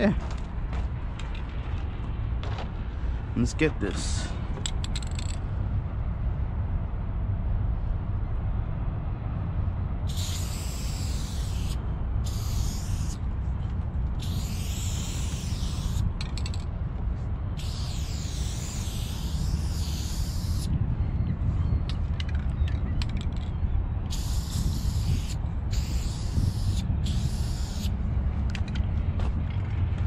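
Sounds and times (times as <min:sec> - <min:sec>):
steady low rumble: 0:00.0 - 0:30.0
spray-paint can spraying: 0:10.1 - 0:13.2, 0:14.2 - 0:16.6, 0:17.6 - 0:20.7, 0:24.1 - 0:27.9.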